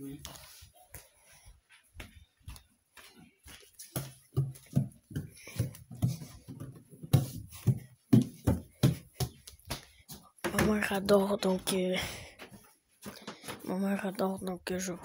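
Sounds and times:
soft irregular thumps: 0:01.0 - 0:11.0.

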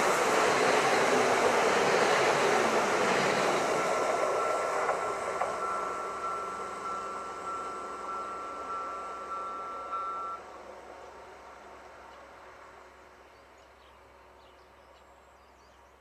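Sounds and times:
train wheels rushing on rails: 0:00.0 - 0:13.3
thin high tone: 0:03.5 - 0:10.4.

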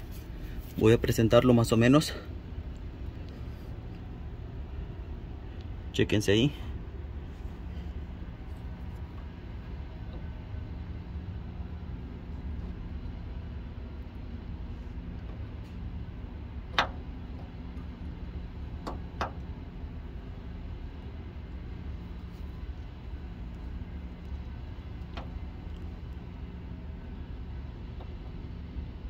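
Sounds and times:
steady low rumble: 0:00.0 - 0:29.0.

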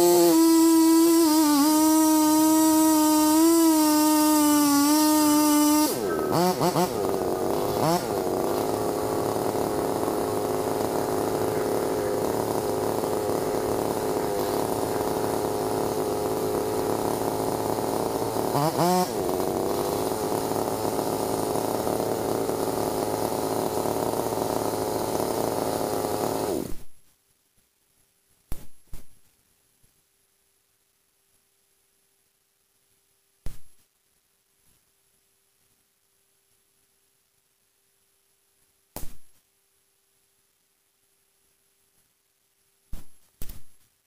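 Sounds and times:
chainsaw cutting tree trunk: 0:00.0 - 0:26.9.

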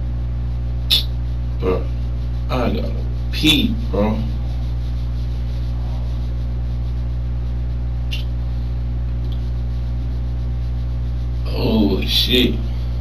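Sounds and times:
low room hum and faint hiss: 0:00.0 - 0:13.0.

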